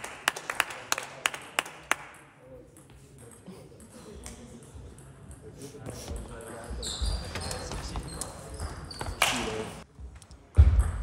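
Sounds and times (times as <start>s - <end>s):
people clapping: 0.0s - 2.2s, 9.2s - 9.6s.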